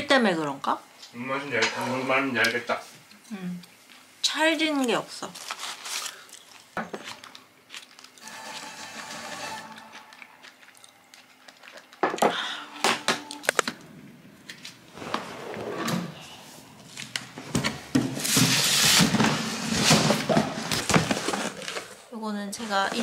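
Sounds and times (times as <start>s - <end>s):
rough rustling scrape: 8.2s - 10.5s.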